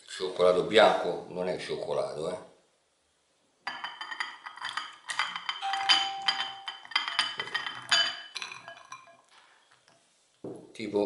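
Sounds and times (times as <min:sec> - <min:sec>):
glass bowls clinking: 0:03.7 - 0:09.3.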